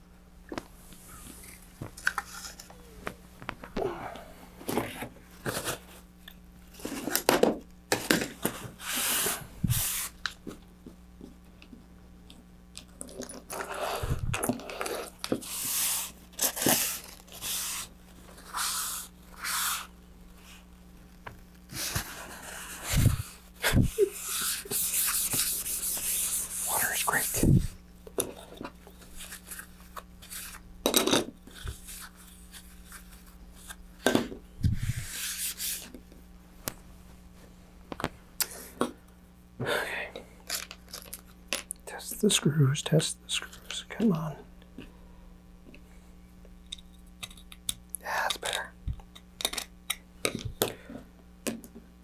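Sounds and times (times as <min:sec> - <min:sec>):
paper towel rubbing on plastic mat: 0:08.7 - 0:10.2, 0:14.8 - 0:20.6, 0:21.7 - 0:27.7, 0:34.7 - 0:36.0.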